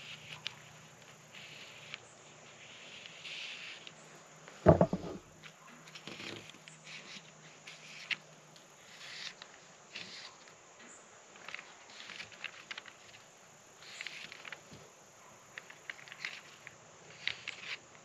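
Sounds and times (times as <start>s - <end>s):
paper rustling and tapping: 4.7s - 5.2s.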